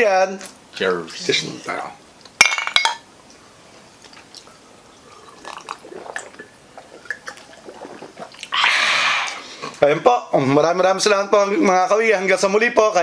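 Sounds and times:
people sipping and swallowing: 3.3 - 9.8
breathy rush: 7.6 - 9.8.

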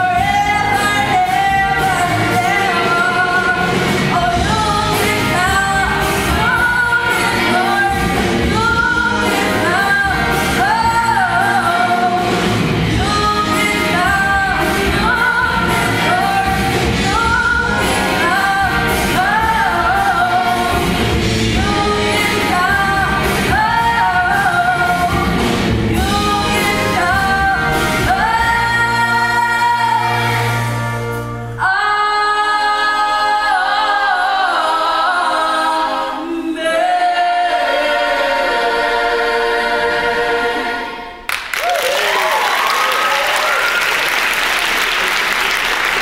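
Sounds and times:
live band playing: 0.0 - 32.2.

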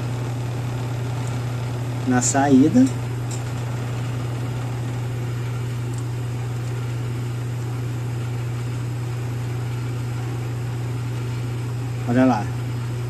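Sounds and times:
refrigeration machinery hum: 0.0 - 13.0.

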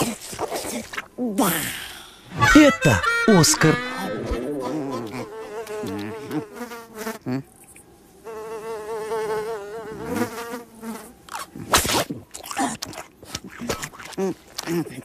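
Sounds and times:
cartoon fly buzzing: 3.6 - 7.4, 8.3 - 11.5.

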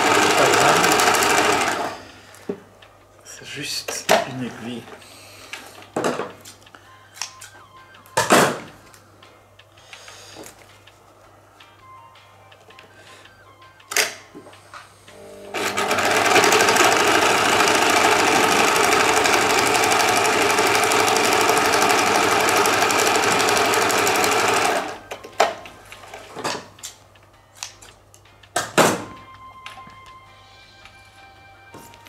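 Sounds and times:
electric sewing machine stitching: 0.0 - 2.2, 15.1 - 25.0.

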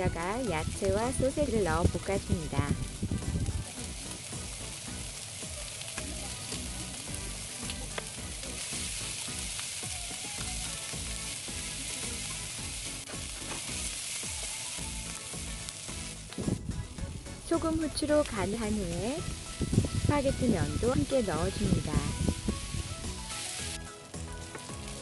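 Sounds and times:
food sizzling in frying pan: 0.0 - 25.0
chopsticks clicking against pan: 5.7 - 6.2.

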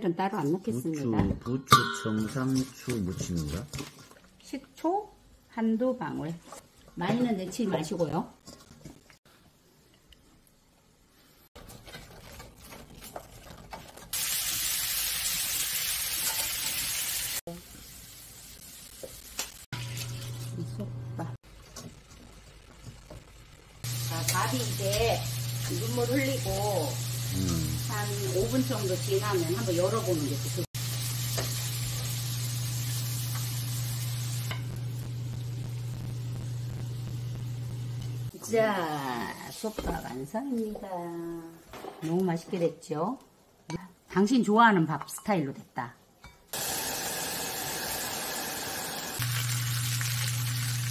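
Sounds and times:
meat sizzling in a grill pan: 14.1 - 20.3, 23.8 - 38.3, 46.6 - 50.9.

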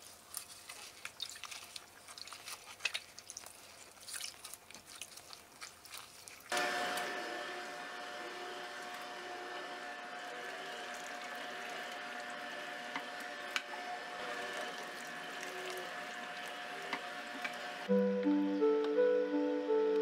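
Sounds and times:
juicer humming: 6.5 - 20.0
acoustic guitar music: 17.9 - 20.0.

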